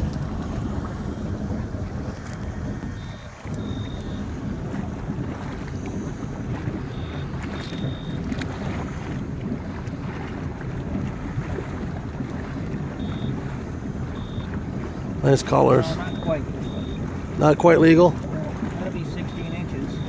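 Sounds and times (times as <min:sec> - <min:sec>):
boat engine rumbling: 0:00.0 - 0:20.0
wind buffeting microphone: 0:00.0 - 0:20.0.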